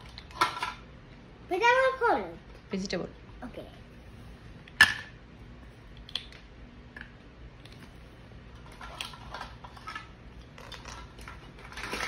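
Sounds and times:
plastic toy food rummaged: 0:08.6 - 0:12.0.

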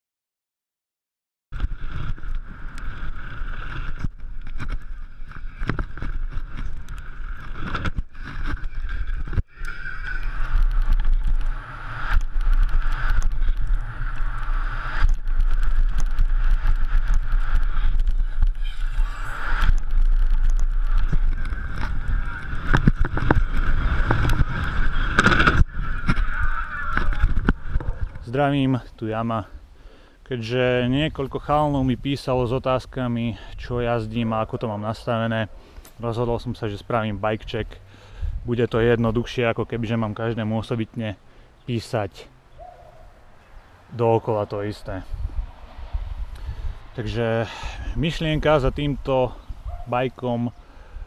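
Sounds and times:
wind rumbling on microphone: 0:01.5 - 0:28.9, 0:30.8 - 0:40.2, 0:42.6 - 0:51.0
bike tyres rattling over dirt: 0:01.6 - 0:28.8.

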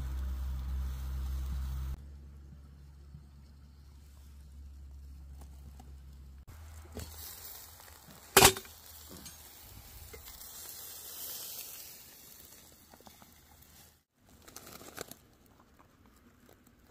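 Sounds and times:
burger patties sizzling on grill: 0:00.0 - 0:02.0, 0:06.5 - 0:14.1.

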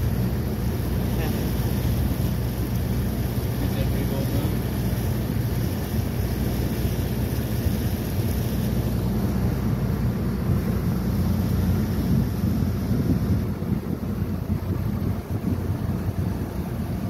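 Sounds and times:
boat engine running: 0:00.0 - 0:17.0
wind on microphone: 0:06.7 - 0:17.0.

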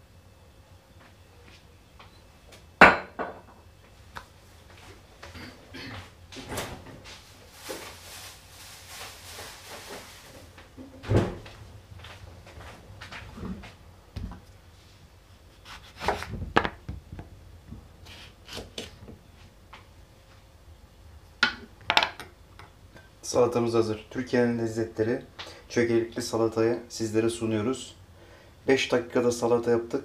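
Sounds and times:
rustling: 0:07.0 - 0:10.7.

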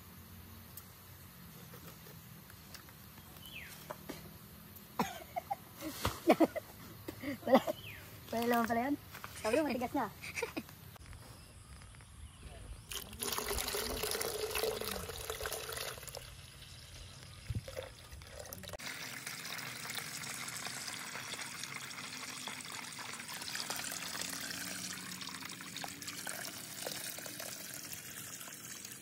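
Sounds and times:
coconut water pouring into cup: 0:12.8 - 0:29.0
water running from pipe into basin: 0:12.9 - 0:29.0.

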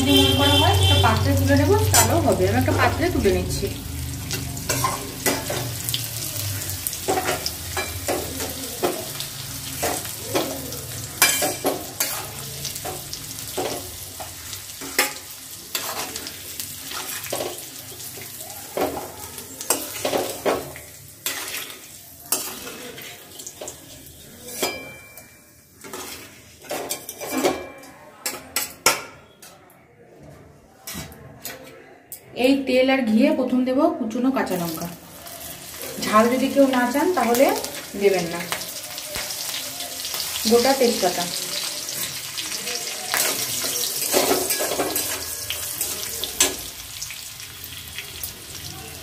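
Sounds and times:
metal spatula scraping a pan: 0:00.0 - 0:03.1, 0:04.2 - 0:18.1, 0:18.8 - 0:25.2, 0:25.8 - 0:27.7
hot oil sizzling: 0:00.0 - 0:27.3, 0:34.3 - 0:49.0.

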